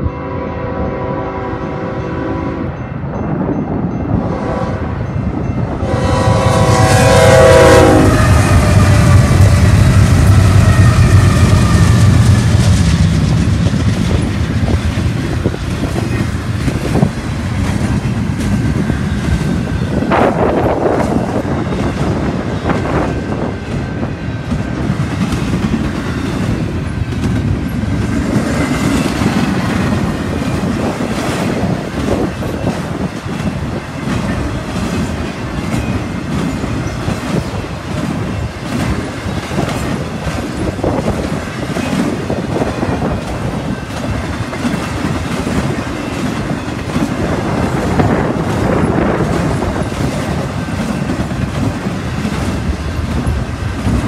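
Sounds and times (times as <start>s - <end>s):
freight train wheels rumbling: 0.0s - 54.0s
wheels clicking on rail: 7.9s - 54.0s.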